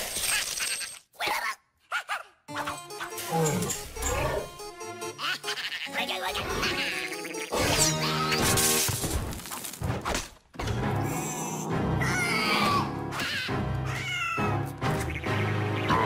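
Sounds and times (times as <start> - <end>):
cartoon music: 2.5 - 8.8.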